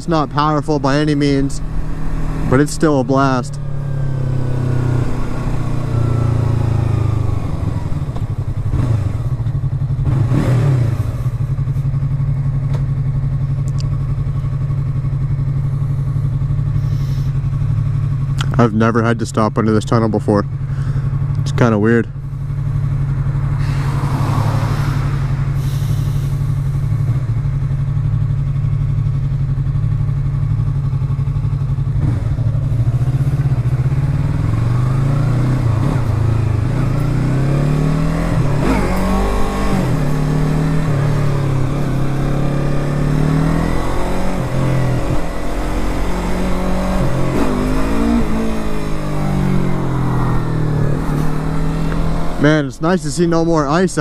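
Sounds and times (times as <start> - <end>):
motorcycle engine idling and revving: 0.0 - 54.0.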